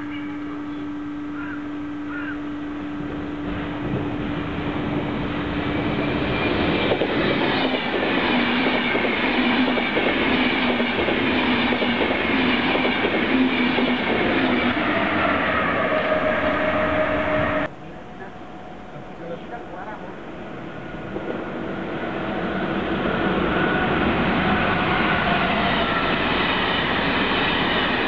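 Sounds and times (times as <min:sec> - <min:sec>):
steady droning tone: 0:00.0 - 0:06.4
train passing at speed: 0:00.0 - 0:28.0.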